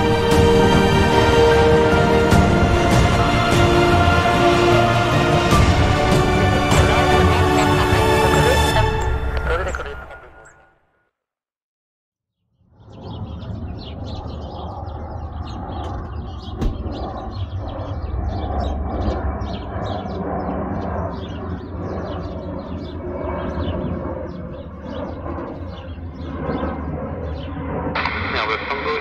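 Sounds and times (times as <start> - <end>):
jet engines rumbling: 0.0 - 10.3, 12.9 - 29.0
small birds chirping: 12.8 - 27.7.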